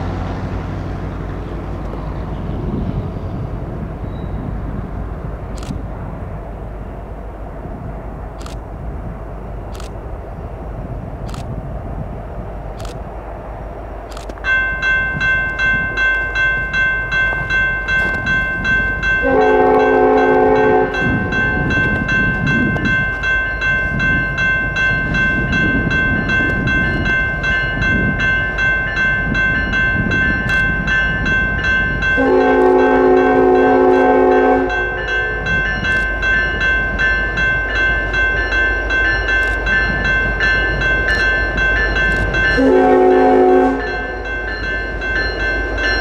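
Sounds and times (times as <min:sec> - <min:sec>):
train rumbling: 0:00.0 - 0:46.0
railroad crossing bell ringing: 0:14.1 - 0:46.0
locomotive horn blasts: 0:19.2 - 0:21.5, 0:32.2 - 0:35.7, 0:42.5 - 0:44.4.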